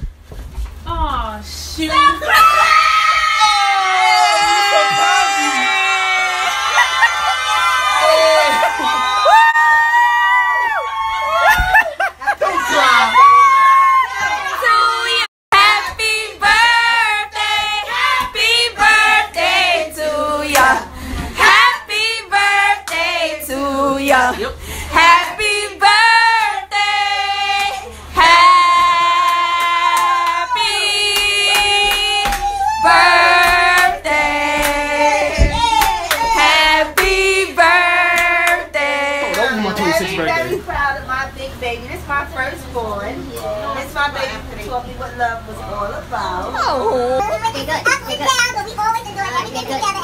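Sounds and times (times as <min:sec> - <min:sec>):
group of voices singing: 0:15.5 - 0:40.0.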